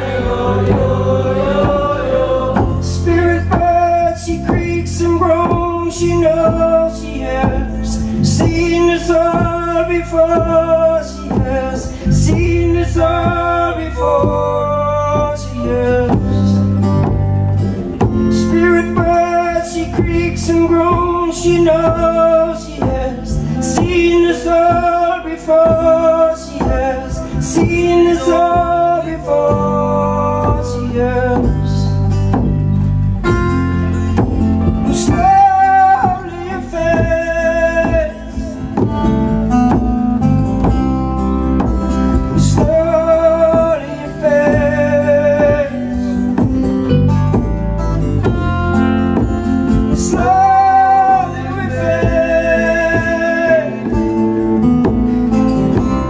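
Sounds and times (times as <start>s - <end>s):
strummed acoustic guitar: 0.0s - 56.0s
sustained low bass: 0.0s - 56.0s
percussion hits: 31.4s - 56.0s.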